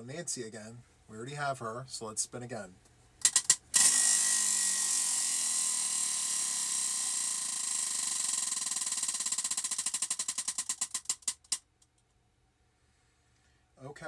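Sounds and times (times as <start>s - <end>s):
prize wheel clicking: 3.2s - 11.6s.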